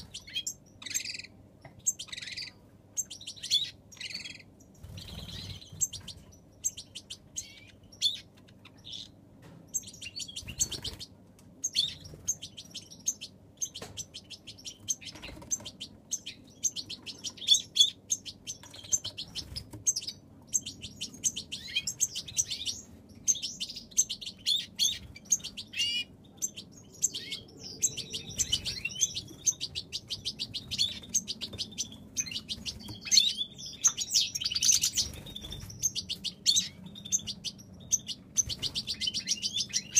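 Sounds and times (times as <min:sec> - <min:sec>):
finches twittering: 0:00.0 - 0:39.9
wings fluttering: 0:04.8 - 0:06.2.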